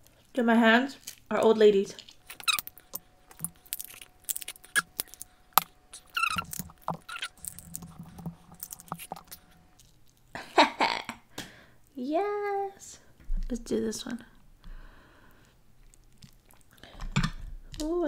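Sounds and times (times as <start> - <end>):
wet eating sound: 2.0 - 10.0, 15.3 - 17.0
crab shell cracking: 2.0 - 10.3, 15.8 - 17.0
shell squeaking: 2.2 - 9.6.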